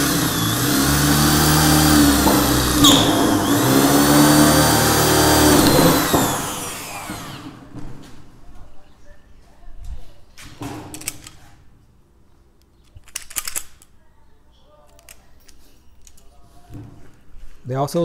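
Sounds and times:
electric drill boring through metal: 0.0s - 7.7s.

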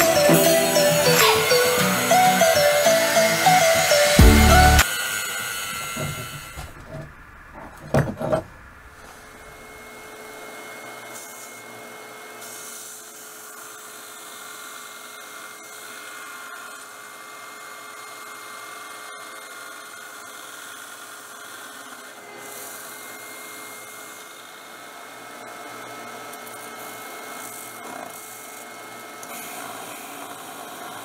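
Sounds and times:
belt sander grinding metal: 0.0s - 8.5s.

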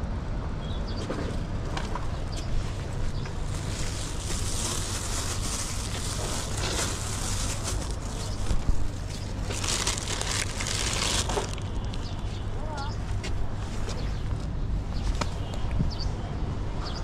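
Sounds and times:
plastic bag crinkling: 2.8s - 12.3s.

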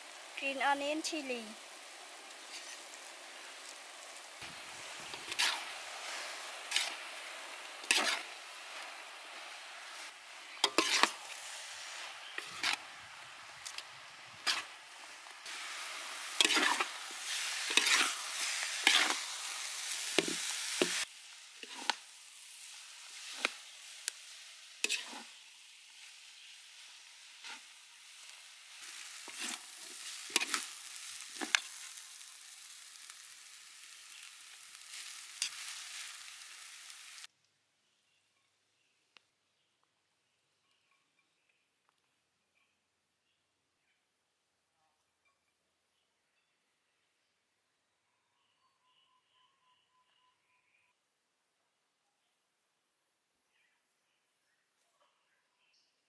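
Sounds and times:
noodles sizzling in a wok: 0.0s - 37.3s
metal utensils clanking on a pan: 10.6s - 11.2s.

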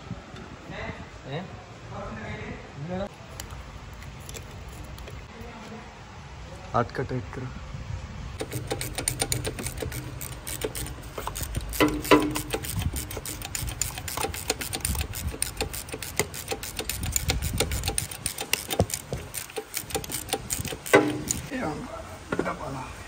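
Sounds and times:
metallic clanks: 8.4s - 21.5s
rapid mechanical clicking: 8.4s - 21.5s.

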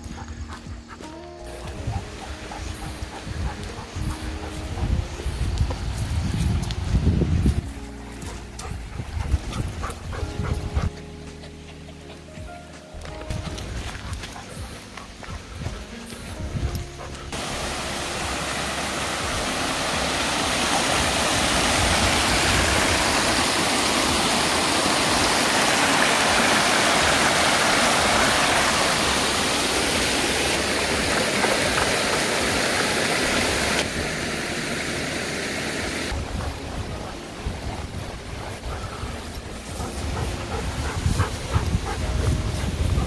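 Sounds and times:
stream splashing over rocks: 17.3s - 38.5s.

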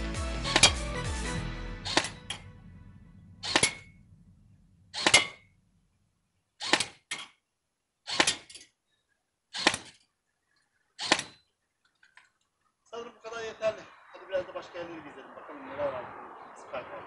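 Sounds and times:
sharp gunshots: 1.8s - 2.5s, 3.4s - 4.1s, 4.9s - 5.6s, 6.6s - 7.1s, 8.1s - 8.5s, 9.5s - 10.0s, 11.0s - 11.4s.

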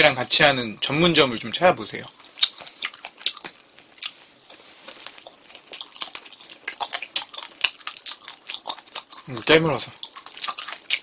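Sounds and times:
person chewing wetly: 2.0s - 11.0s.

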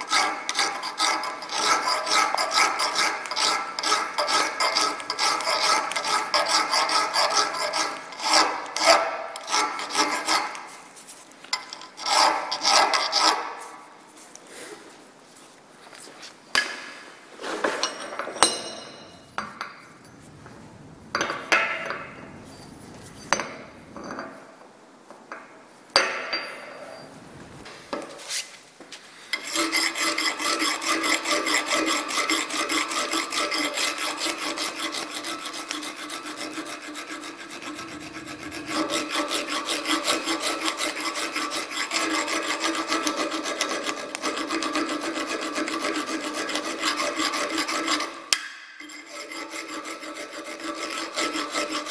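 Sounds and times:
file rasping on steel: 0.0s - 10.8s, 11.6s - 13.8s, 29.4s - 51.9s
knocks and clinks of metal: 17.8s - 19.8s
steel ringing tone: 18.4s - 24.4s.

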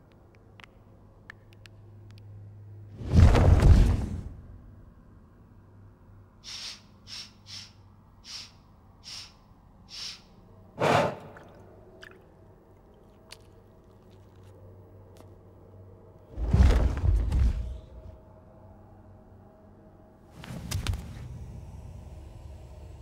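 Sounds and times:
creature sniffing and breathing: 6.4s - 10.2s, 10.8s - 11.4s.

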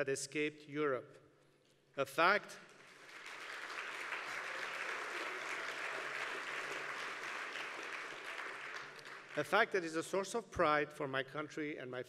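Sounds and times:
audience applauding: 2.7s - 9.8s.

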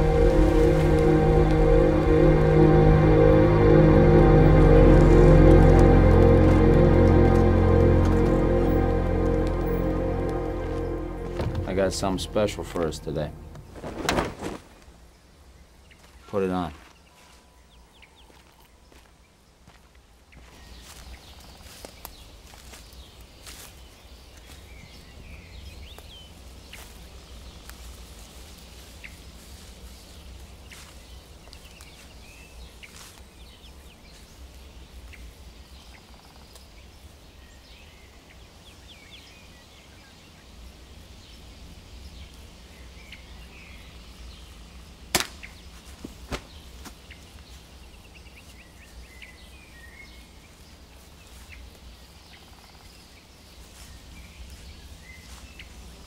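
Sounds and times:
low steady rumble: 0.0s - 13.9s.

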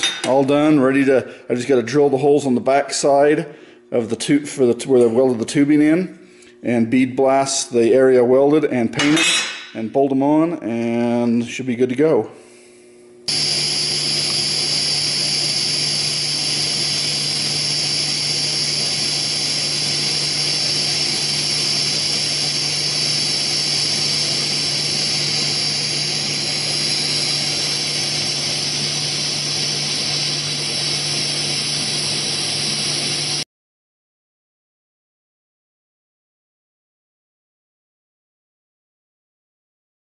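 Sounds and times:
welding arc hissing and humming: 12.6s - 33.4s.

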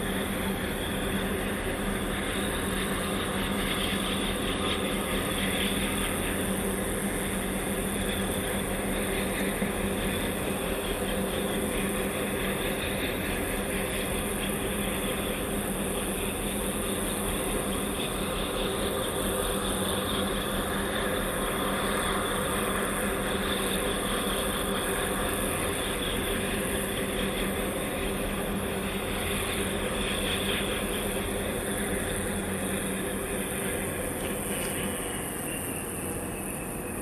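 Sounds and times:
ship engines droning: 9.3s - 37.0s.

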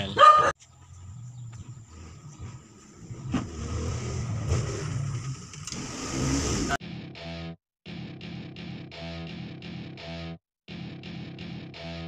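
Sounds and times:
vehicle engine running: 0.6s - 6.7s.

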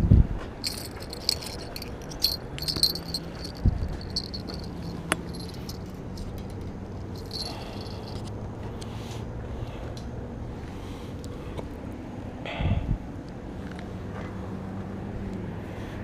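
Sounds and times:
fishing gear clinking and rattling: 0.6s - 8.3s.

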